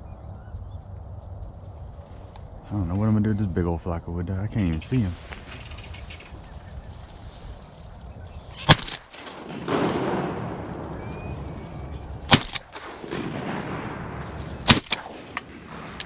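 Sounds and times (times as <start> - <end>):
shotgun blasts: 8.5 - 16.0.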